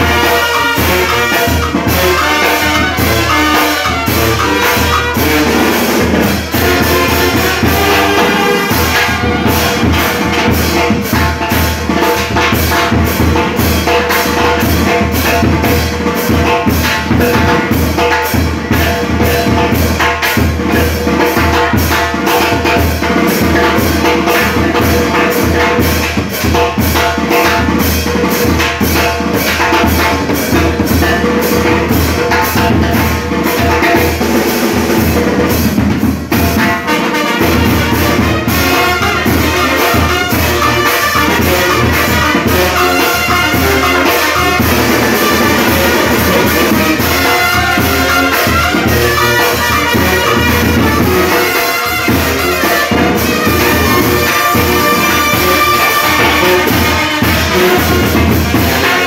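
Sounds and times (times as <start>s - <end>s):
saxophone: 0.0s - 11.4s, 36.6s - 59.0s
bass drum: 0.0s - 59.0s
brass band playing: 0.0s - 59.0s
snare drum steady beat: 0.0s - 59.0s
trombones and trumpet: 0.0s - 59.0s.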